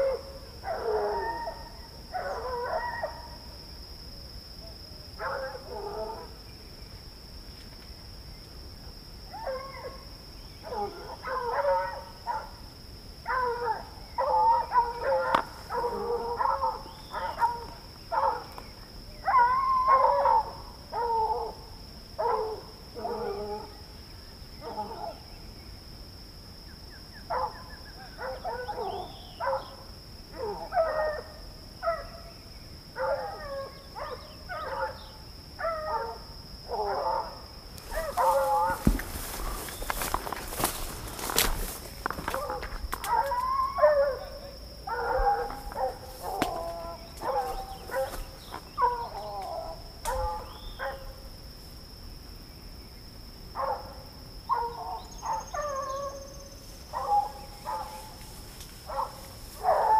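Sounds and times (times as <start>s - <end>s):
dogs barking: 0.0s - 3.4s, 5.2s - 6.4s, 9.4s - 10.0s, 10.6s - 12.6s, 13.3s - 18.6s, 19.2s - 21.6s, 22.2s - 23.7s, 27.3s - 29.8s, 30.4s - 32.2s, 33.0s - 51.2s, 53.6s - 56.3s, 56.9s - 58.2s, 58.8s - 59.9s.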